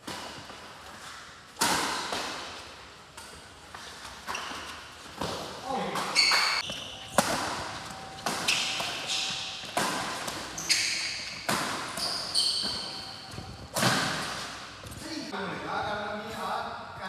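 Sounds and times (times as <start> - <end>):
shoes squeaking on floor: 3.7 - 15.2
rackets striking shuttlecock: 5.2 - 14.7.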